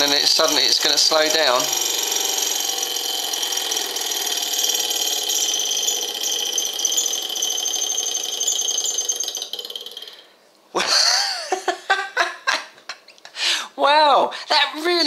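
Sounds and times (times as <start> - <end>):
small engine whirring with whine: 0.0 - 10.3.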